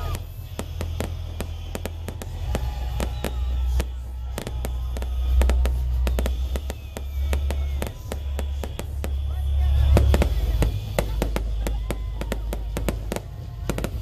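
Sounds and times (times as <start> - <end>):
fireworks bursting with bangs: 0.0 - 14.0
steady low rumble: 0.0 - 14.0.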